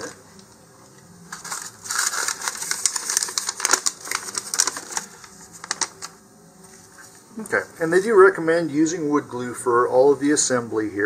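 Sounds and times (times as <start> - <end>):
crinkly rustling: 1.3 - 7.2.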